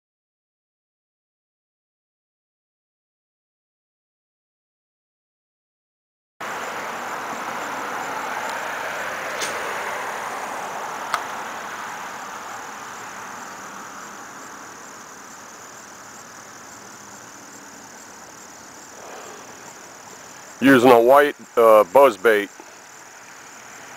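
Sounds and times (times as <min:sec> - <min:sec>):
insect buzz: 0:06.4 - 0:23.9
road traffic passing: 0:06.4 - 0:23.9.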